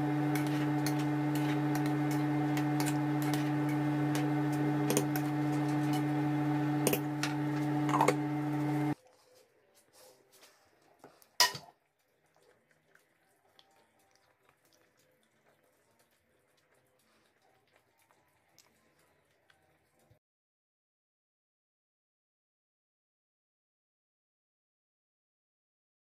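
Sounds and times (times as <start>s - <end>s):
steady hum: 0.0s - 9.0s.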